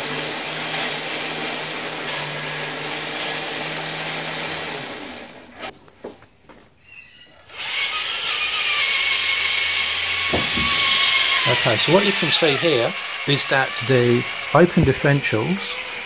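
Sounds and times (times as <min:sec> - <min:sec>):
toy truck motor whirring: 0:07.4 - 0:16.0.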